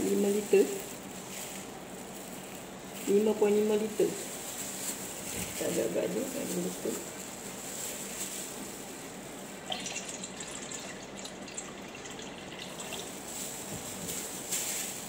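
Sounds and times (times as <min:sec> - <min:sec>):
water pouring into a metal pot: 0:09.7 - 0:13.1.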